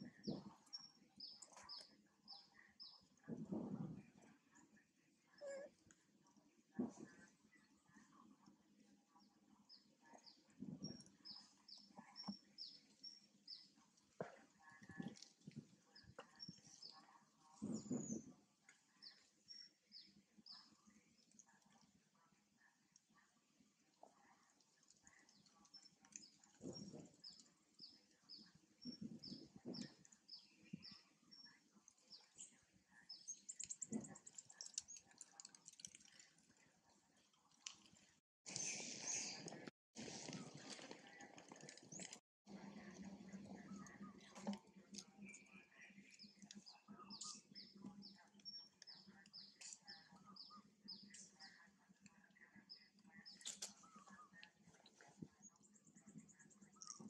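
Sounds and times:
faint rustles and bumps: 3.2 - 4.4
birds chirping: 9.2 - 21.4, 41.0 - 57.0.

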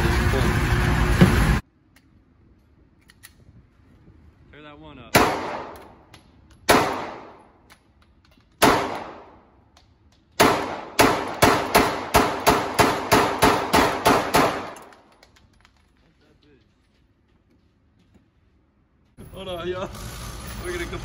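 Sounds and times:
pistol shots indoors: 5.1 - 6.0, 6.7 - 7.5, 8.6 - 9.5, 10.4 - 14.8.

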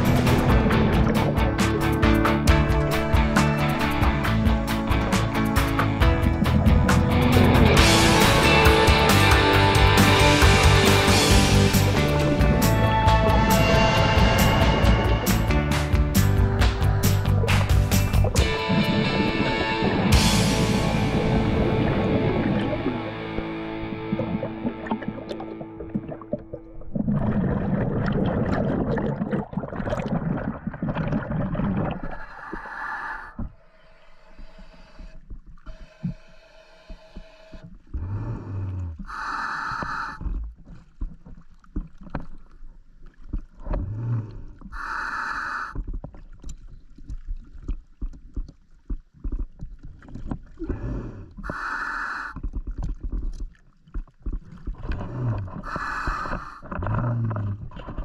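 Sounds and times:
low rising hum: 0.0 - 28.2
exhaled bubbles underwater: 20.8 - 33.5, 52.3 - 58.0
hissing breath through regulator: 32.2 - 40.2, 44.8 - 45.8, 50.6 - 52.4, 55.6 - 56.7.

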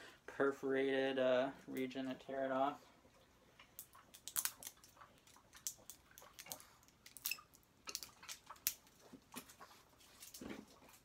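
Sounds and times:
plastic seal crinkling and tearing: 4.1 - 8.9.

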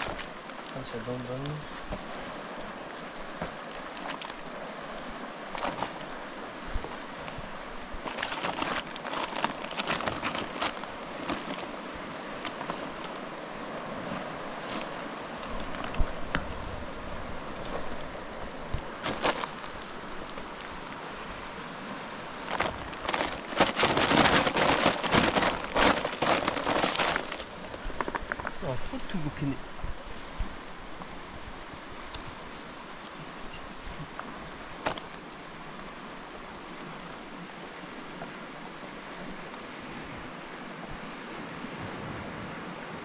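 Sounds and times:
cast net rustling and clicking: 0.0 - 2.0, 3.4 - 6.2, 8.0 - 13.3, 14.2 - 16.6, 17.6 - 21.0, 22.4 - 28.6, 34.8 - 35.2
fast river rushing: 0.0 - 43.0.

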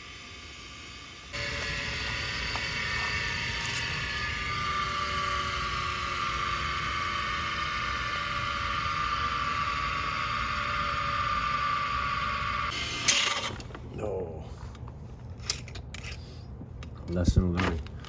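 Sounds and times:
grinding wheel motor whining: 0.0 - 13.7.

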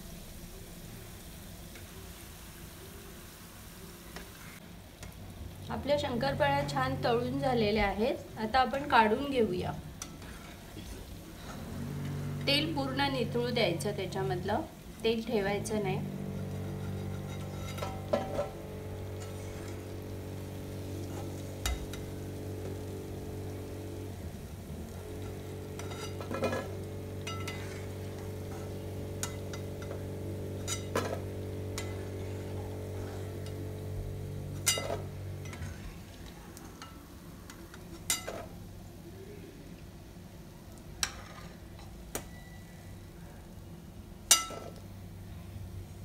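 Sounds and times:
dough frying in hot oil: 0.0 - 46.0
steady low hum: 5.4 - 41.2
metal spoon scraping pan: 10.0 - 11.7, 16.2 - 22.1, 25.2 - 33.7, 34.5 - 35.9, 41.0 - 41.6.

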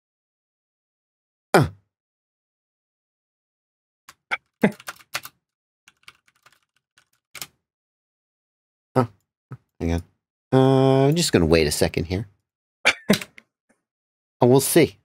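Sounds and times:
computer keyboard typing: 4.1 - 7.5.

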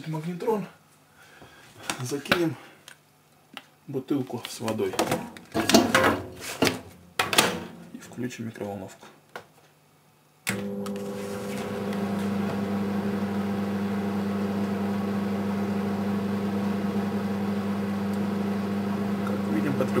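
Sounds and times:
microwave oven humming: 10.5 - 20.0.

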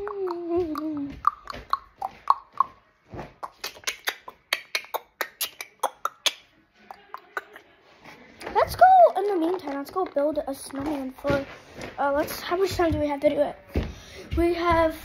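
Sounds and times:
beatboxing mouth clicks and pops: 0.0 - 7.7.

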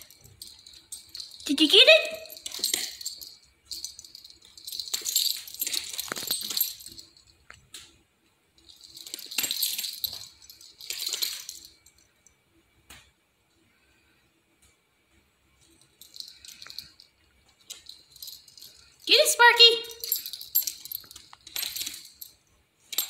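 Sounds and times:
dog collar tags jingling: 0.0 - 7.6, 8.6 - 12.0, 15.8 - 23.0.

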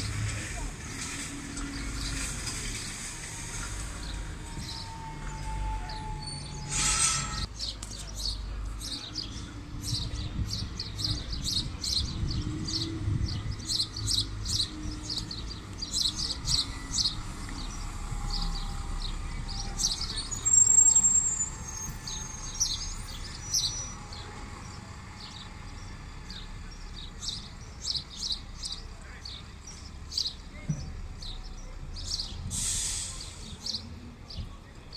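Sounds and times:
bus and traffic engines rumbling: 0.0 - 34.9
small birds chirping: 7.4 - 34.9
short hiss: 32.5 - 33.6.

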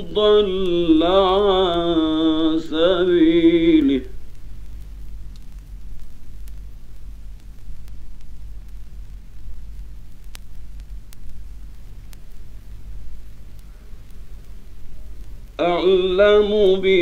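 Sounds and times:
low mains hum: 0.0 - 17.0
recording hiss: 0.0 - 17.0
sharp clicks: 3.7 - 12.8.

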